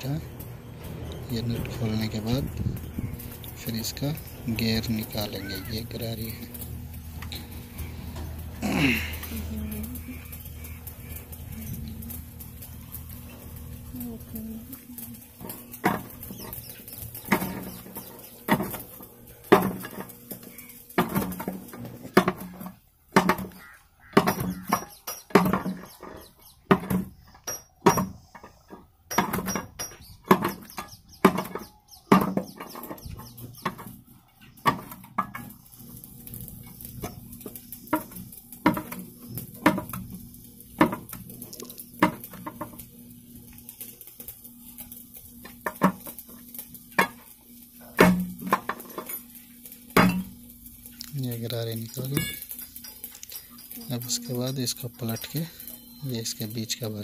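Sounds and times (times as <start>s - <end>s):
pry bar clanking on metal gears: 52.0s - 53.5s.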